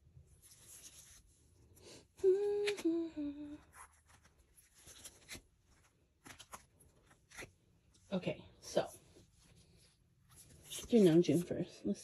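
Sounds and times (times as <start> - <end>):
person humming: 2.2 - 3.7
photo cards rustling and clicking: 3.6 - 8.0, 9.4 - 11.8.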